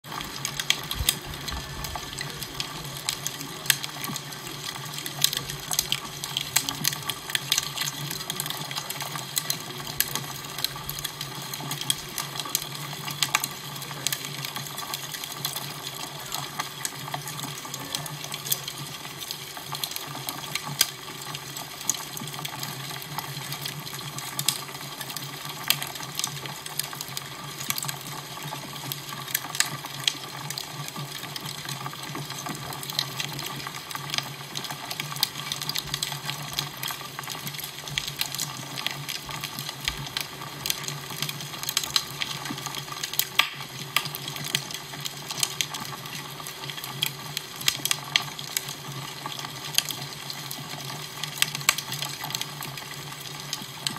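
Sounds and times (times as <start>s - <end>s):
fire crackling and popping: 0.0s - 53.9s.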